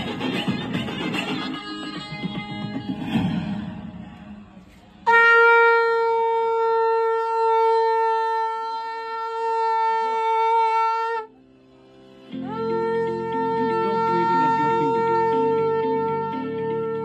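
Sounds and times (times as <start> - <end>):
conch shell blown: 5.0 - 17.0.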